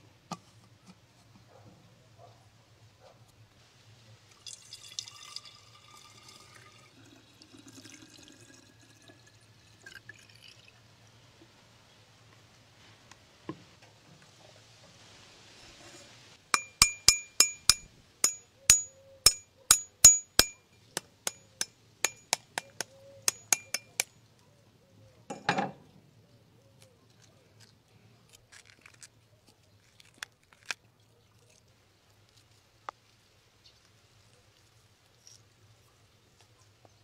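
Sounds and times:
eggshell tapped with tool: 16.6 - 24.1
eggshell crunching: 27.2 - 32.6.

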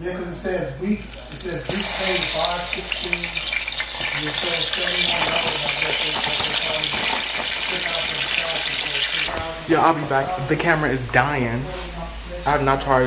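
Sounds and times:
chicken frying in hot oil: 1.0 - 9.3.

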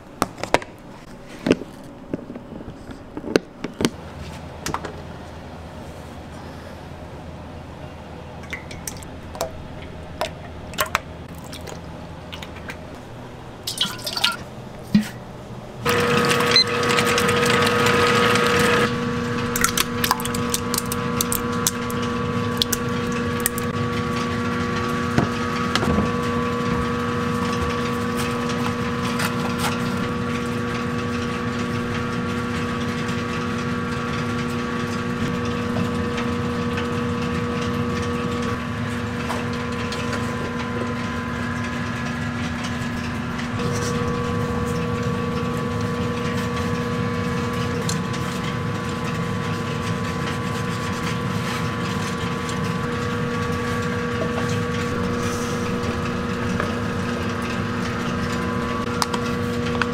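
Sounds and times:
machine hum with whine: 0.0 - 59.9
liquid pouring into steel bowls: 13.7 - 14.4.

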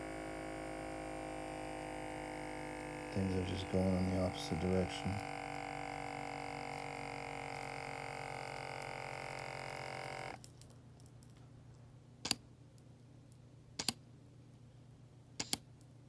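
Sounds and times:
cuff inflation pump humming: 0.0 - 10.4
sharp clicks: 13.8 - 14.0, 15.4 - 15.7.

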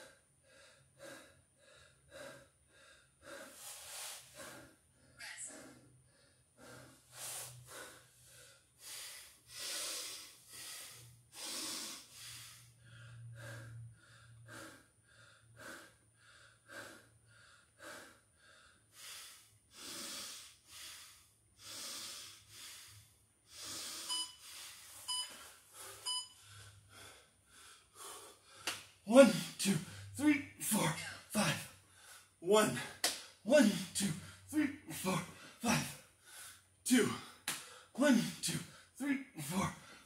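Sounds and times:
man panting heavily: 0.0 - 40.0
electronic timer beeps: 24.1 - 24.4, 25.1 - 25.4, 26.0 - 26.4.

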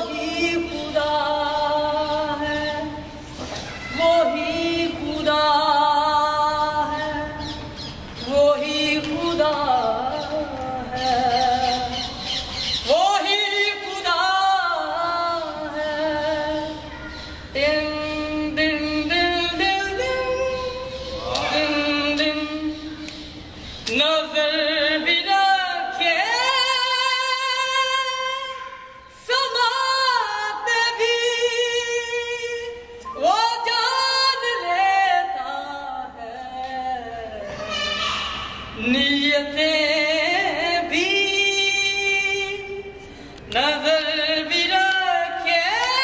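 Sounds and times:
man singing unaccompanied: 17.6 - 22.9.

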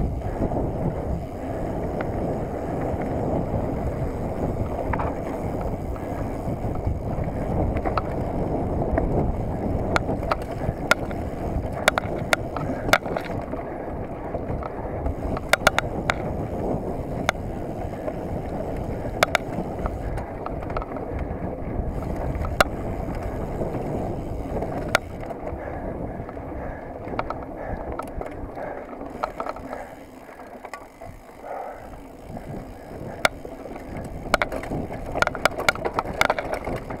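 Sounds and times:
bike clicks and rattles: 0.0 - 37.0
tyres rumbling on dirt trail: 0.0 - 37.0.

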